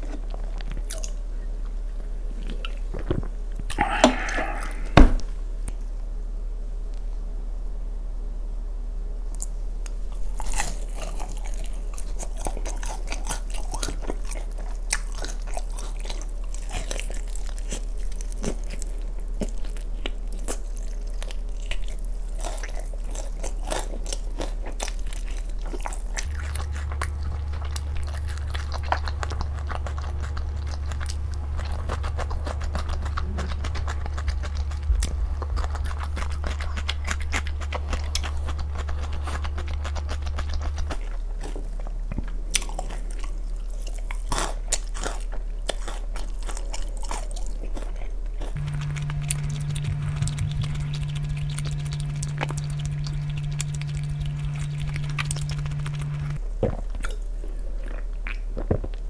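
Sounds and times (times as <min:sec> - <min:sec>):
crunchy chewing: 0:00.0 - 0:06.0, 0:09.3 - 0:59.0
low steady hum: 0:00.0 - 0:59.0
wet mouth sounds: 0:03.6 - 0:05.3, 0:25.7 - 0:41.2, 0:46.7 - 0:59.0.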